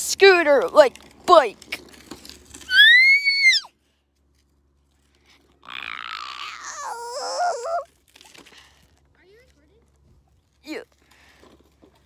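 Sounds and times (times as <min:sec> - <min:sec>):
child shrieking: 0:02.7 - 0:03.7, 0:05.7 - 0:07.9
raspy growl-like voice: 0:05.6 - 0:07.9.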